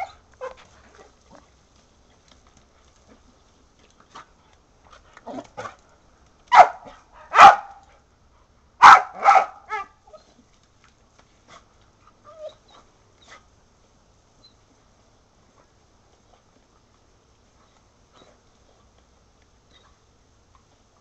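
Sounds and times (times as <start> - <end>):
dog barking: 6.5 - 7.8, 8.8 - 9.9.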